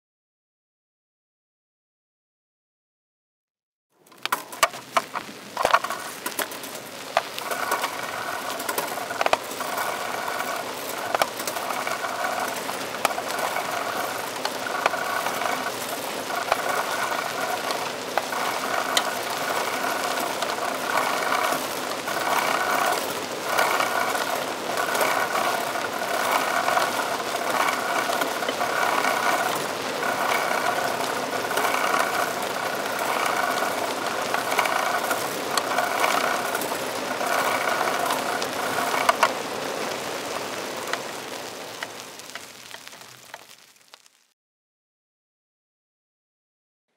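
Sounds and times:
bicycle parts rattling: 0:04.0 - 0:41.2
chainguard scraping: 0:04.1 - 0:44.0.

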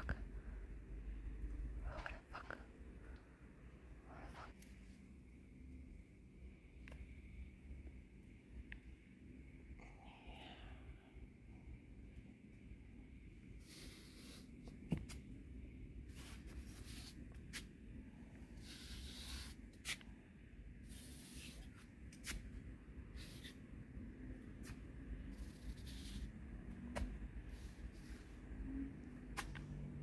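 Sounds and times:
steady low rumble: 0:21.9 - 0:30.0.

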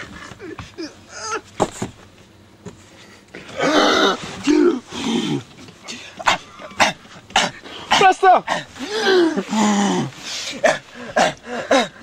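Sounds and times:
man choking and coughing: 0:03.5 - 0:12.0.

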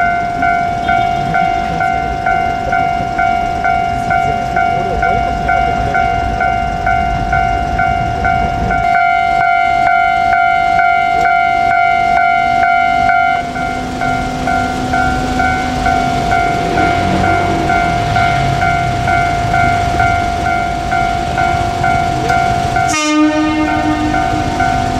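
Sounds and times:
electric train hum and rumble: 0:00.0 - 0:24.9
level crossing warning bell: 0:00.0 - 0:24.9.

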